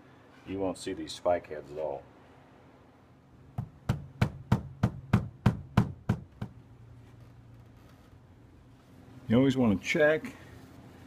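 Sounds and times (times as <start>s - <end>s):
hammer tapping nails into wood: 3.6s - 6.6s.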